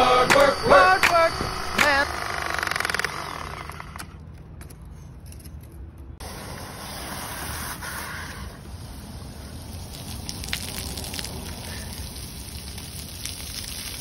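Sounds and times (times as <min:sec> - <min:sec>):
cordless power tool buzzing: 0:00.0 - 0:04.2
water spraying from pipe: 0:06.2 - 0:14.0.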